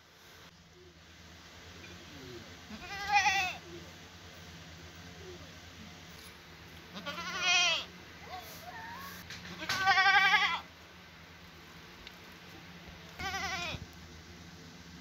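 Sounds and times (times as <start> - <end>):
goat bleating: 2.7 - 3.6, 6.9 - 10.7, 13.1 - 13.8.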